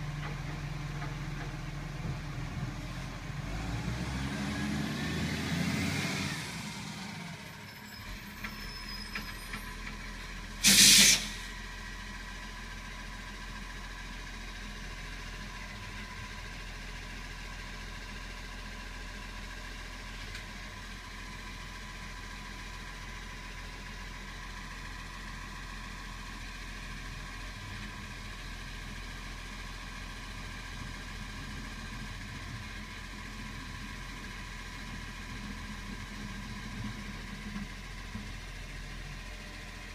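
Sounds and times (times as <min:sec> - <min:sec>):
diesel engine idling: 0:06.3 - 0:39.9
air brakes hissing: 0:10.6 - 0:11.5.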